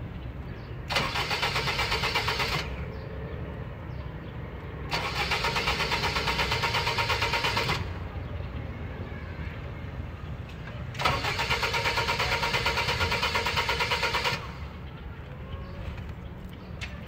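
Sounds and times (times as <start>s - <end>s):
starter motor cranking engine: 0.9s - 2.8s, 4.9s - 8.0s, 11.0s - 14.7s.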